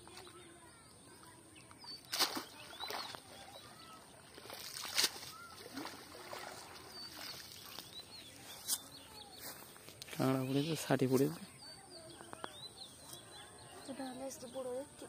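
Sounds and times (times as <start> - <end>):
birds chirping: 0.0 - 15.0
water splashing from net: 2.0 - 7.8.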